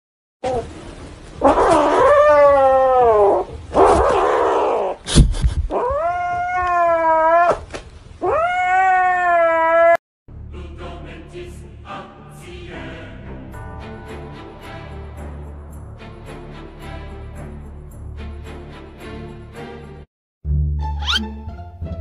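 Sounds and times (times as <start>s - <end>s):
kitten yowling: 1.4s - 5.0s, 5.7s - 10.0s, 21.0s - 21.2s.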